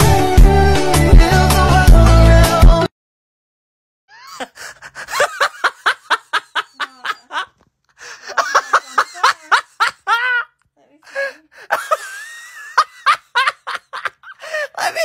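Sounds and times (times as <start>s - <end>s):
woman laughing: 4.1s - 15.0s.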